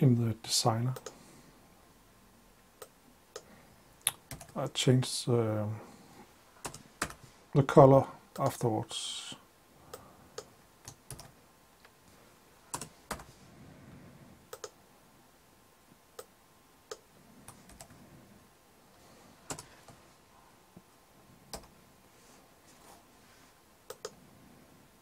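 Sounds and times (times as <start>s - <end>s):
mouse buttons clicking: 23.9s - 24.2s.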